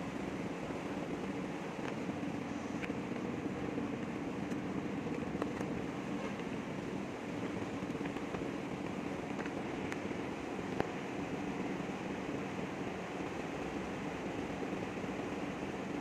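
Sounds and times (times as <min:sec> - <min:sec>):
mechanical hum: 0:00.0 - 0:16.0.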